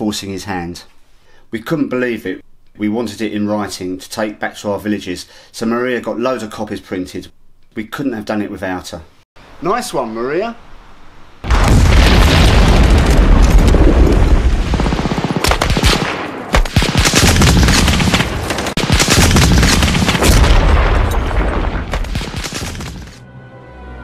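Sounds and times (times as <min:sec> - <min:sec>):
deep rumble of explosions: 0:11.4 - 0:23.2
machine-gun fire: 0:11.6 - 0:23.2
rifle shots: 0:14.6 - 0:23.2.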